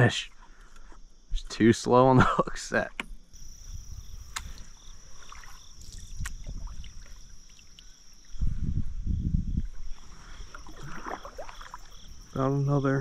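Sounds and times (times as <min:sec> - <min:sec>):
high-pitched insect drone: 0:03.2 - 0:13.0
water sloshing against hull: 0:04.2 - 0:08.6, 0:09.4 - 0:12.4
paddle splashing in water: 0:04.4 - 0:07.9, 0:09.8 - 0:12.2.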